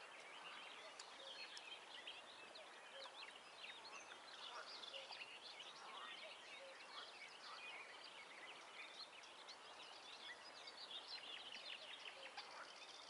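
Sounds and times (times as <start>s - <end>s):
songbirds chirping and whistling: 0.0s - 13.0s.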